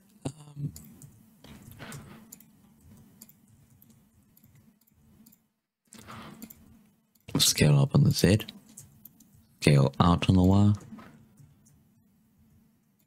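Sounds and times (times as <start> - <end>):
faint low hum: 0.0 - 13.0
mouse and keyboard clicks: 0.7 - 7.4, 8.4 - 9.4.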